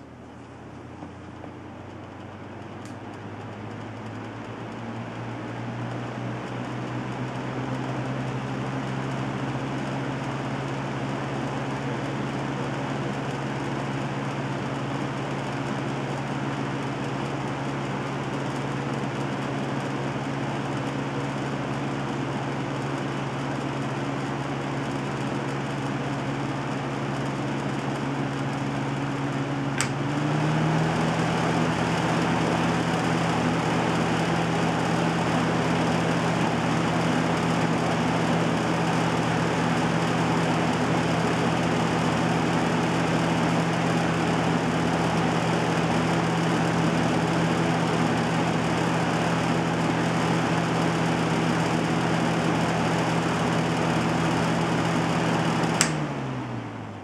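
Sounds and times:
box fan humming: 0.0 - 57.0
fan switch click: 29.8 - 30.0, 55.8 - 56.1.

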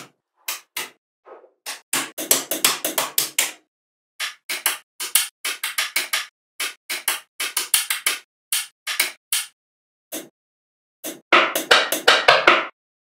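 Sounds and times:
magnetic balls clicking together: 4.2 - 9.6.

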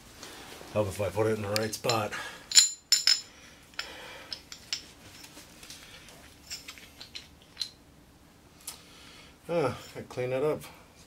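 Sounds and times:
metal tool parts clinking: 1.8 - 5.3, 6.4 - 7.8.

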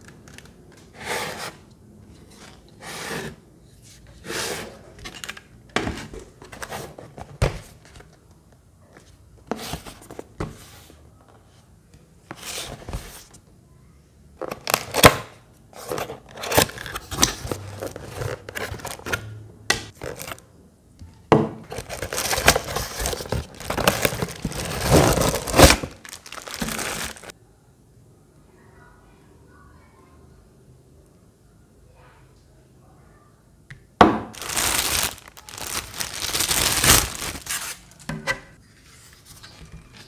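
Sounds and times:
plastic bag crinkling: 19.9 - 20.4, 21.7 - 27.3, 34.3 - 38.0.

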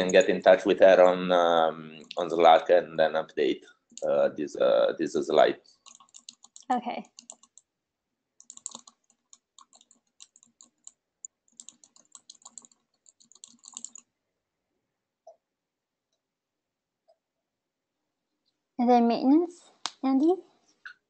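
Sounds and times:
computer keyboard typing: 5.8 - 7.7, 8.4 - 14.1.

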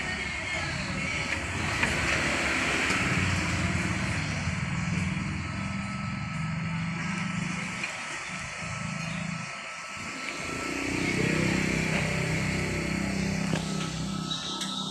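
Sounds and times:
traffic noise: 0.0 - 14.9
vehicle engine running: 0.0 - 14.9.

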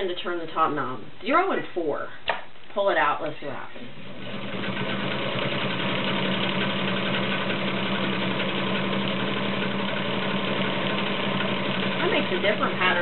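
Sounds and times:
sewing machine motor humming: 3.9 - 13.0
sewing machine ticking: 4.1 - 13.0.

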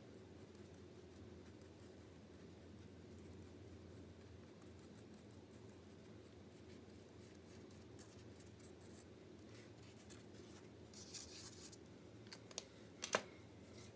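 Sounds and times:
low steady background hum: 0.0 - 13.9
marker scratching on paper: 9.8 - 11.8.

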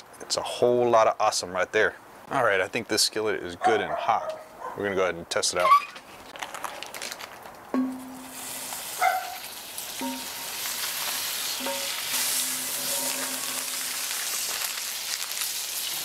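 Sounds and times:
butter sizzling in skillet: 8.1 - 16.0
metal tongs clinking on pan: 10.0 - 14.8.

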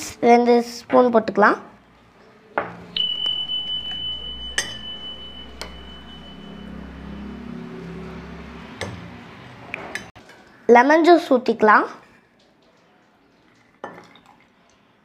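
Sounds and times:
glass ringing high tone: 2.8 - 9.2
light glass clinks: 3.0 - 7.5.

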